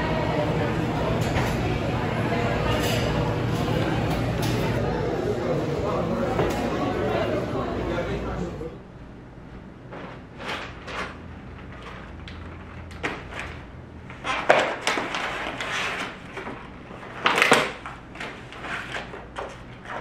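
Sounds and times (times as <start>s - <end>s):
paper bag rustling: 9.9s - 17.4s.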